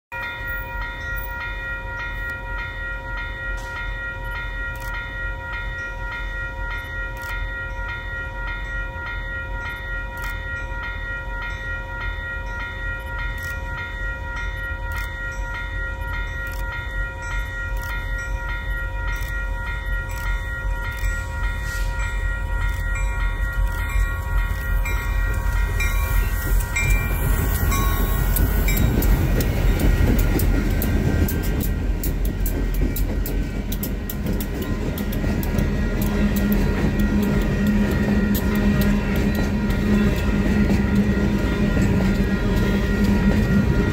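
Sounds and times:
freight train rumbling: 0.1 - 43.9
locomotives passing with wheel noise: 11.6 - 43.9.

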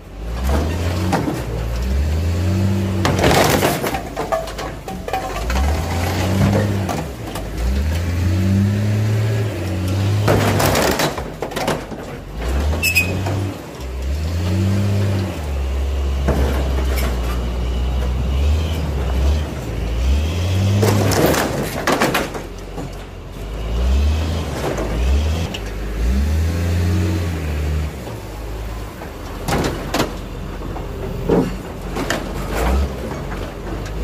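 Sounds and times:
diesel engine revving: 0.0 - 34.0
metal panels crunching and tearing: 3.0 - 7.6, 10.2 - 13.7, 20.8 - 23.1.

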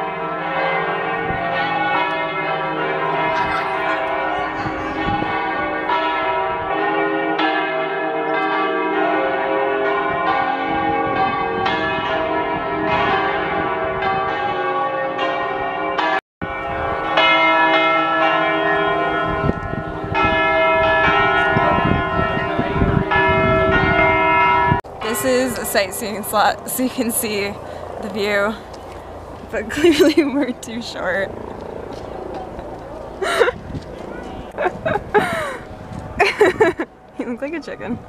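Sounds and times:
church bells pealing: 0.0 - 38.0.

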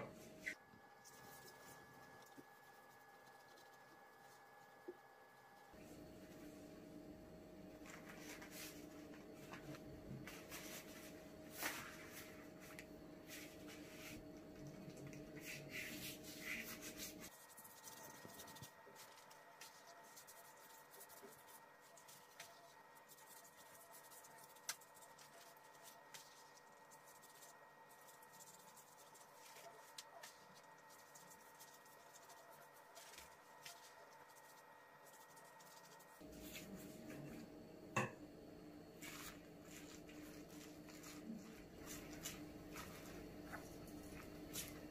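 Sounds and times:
pastry sheets crinkling: 7.8 - 36.9, 39.0 - 44.9
pastry brush dabbing: 10.3 - 37.5, 38.8 - 44.9.

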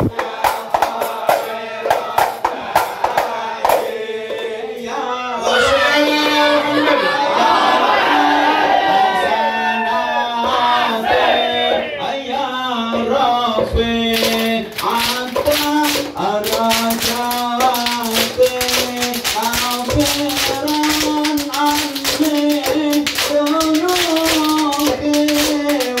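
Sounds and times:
hand clapping: 0.0 - 4.6, 14.0 - 26.0
frame drums: 0.0 - 8.9, 10.4 - 26.0
men singing together: 0.0 - 26.0.

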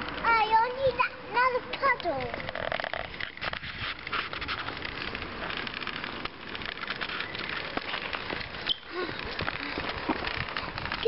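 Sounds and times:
small tyres rolling on gritty path: 0.0 - 11.0.

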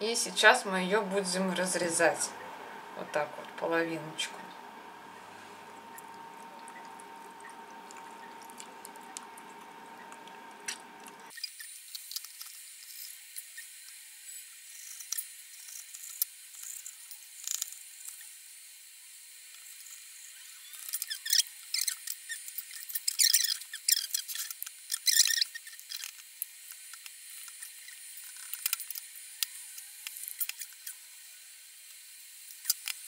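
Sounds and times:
carcass crackling snaps: 5.6 - 11.3, 20.8 - 31.0.

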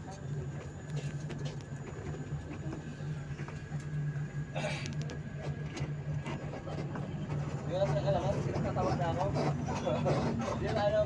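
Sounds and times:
bus engine drone: 0.0 - 11.0.

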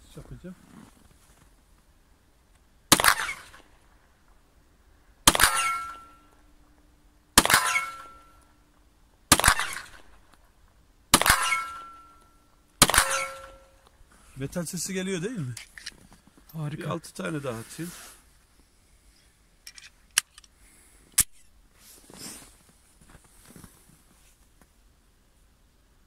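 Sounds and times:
pistol shots: 2.9 - 3.8, 5.2 - 6.4, 7.4 - 8.4, 9.3 - 10.3, 11.1 - 12.2, 12.8 - 13.7.

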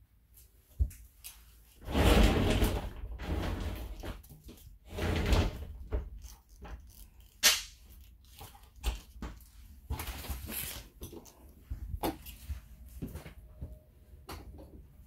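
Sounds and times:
shower door rubbing sweep: 1.8 - 4.2, 4.8 - 6.0.

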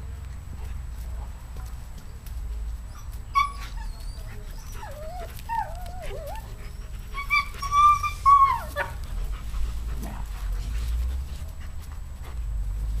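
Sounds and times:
dog whining: 2.9 - 9.1.

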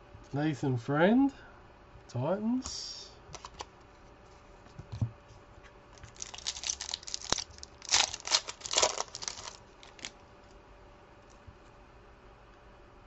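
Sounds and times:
wrapper tearing and crinkling: 6.0 - 10.1.

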